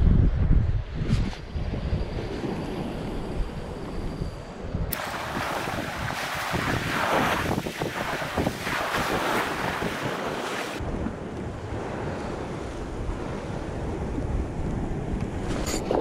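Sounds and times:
wind buffeting microphone: 0:00.0 - 0:16.0
sea waves breaking over rocks: 0:04.9 - 0:16.0.

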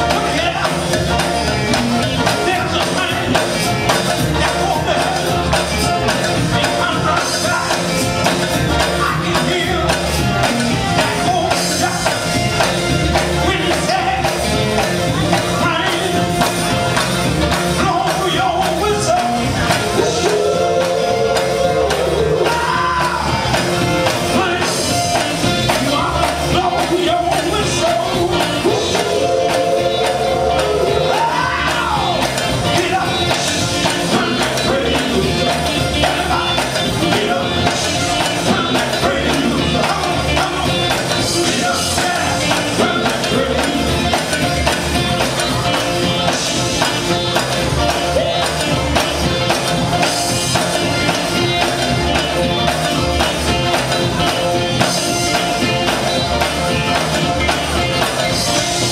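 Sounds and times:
gospel band playing: 0:00.0 - 0:58.9
person singing: 0:17.8 - 0:23.7, 0:24.3 - 0:44.4.

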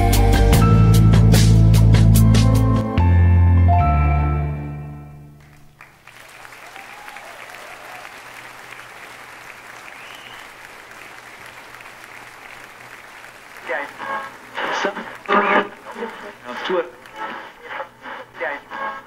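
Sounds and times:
stage music: 0:00.0 - 0:17.8
audience applause: 0:05.4 - 0:18.2.

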